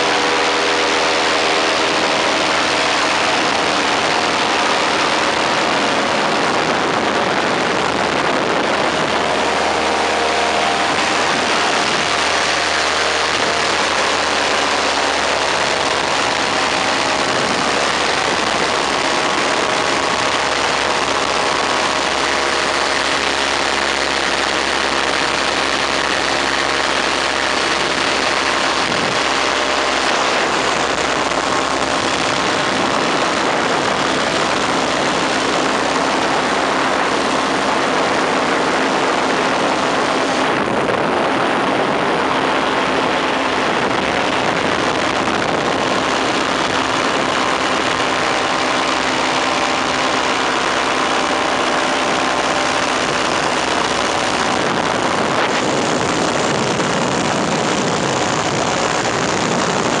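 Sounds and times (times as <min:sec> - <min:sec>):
engine and propeller running: 0:00.0 - 1:00.0
wind rushing over microphone: 0:00.0 - 1:00.0.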